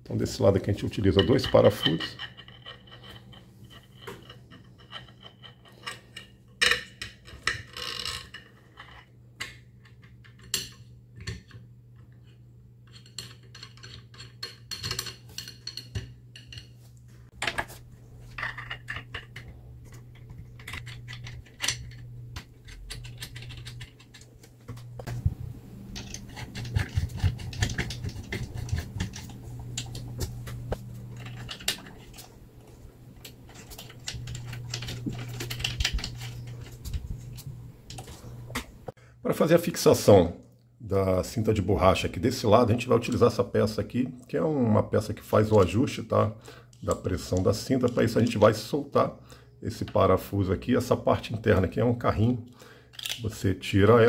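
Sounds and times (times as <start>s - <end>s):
low steady hum: 0.0s - 54.0s
metal parts clicking and scraping: 0.8s - 11.5s, 12.8s - 16.8s, 17.4s - 25.2s, 25.8s - 38.8s, 52.9s - 53.3s.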